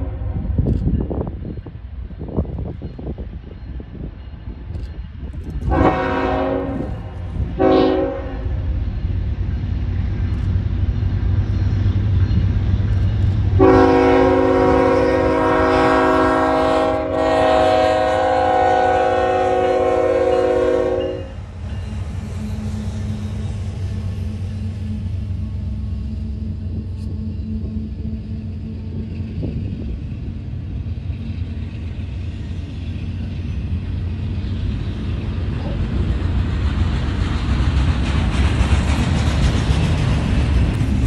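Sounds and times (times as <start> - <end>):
locomotive rumble: 0.0 - 41.0
locomotive air horn: 5.7 - 8.6, 13.6 - 21.4.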